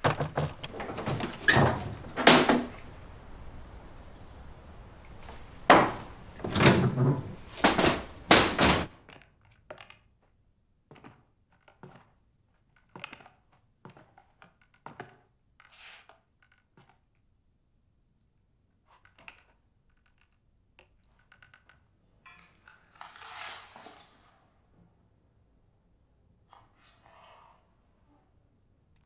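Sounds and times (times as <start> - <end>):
heavy thuds and bangs: 5.6 - 8.9.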